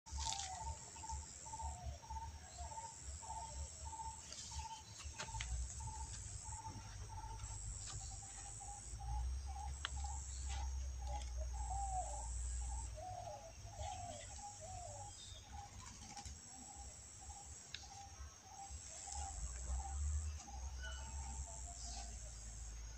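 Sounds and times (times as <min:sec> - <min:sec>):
birds chirping: 0:00.1 - 0:22.9
high insect drone: 0:00.1 - 0:22.9.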